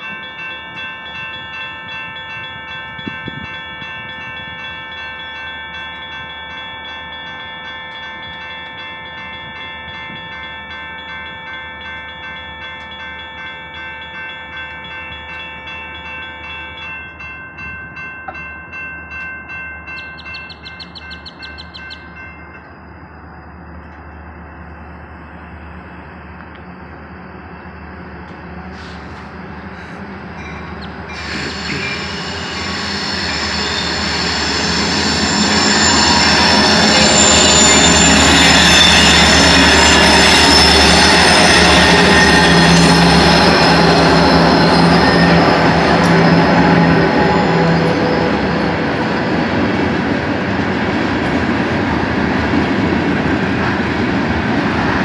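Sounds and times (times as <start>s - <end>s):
diesel locomotive rumbling: 18.2s - 55.0s
steel wheels squealing on rails: 19.9s - 50.4s.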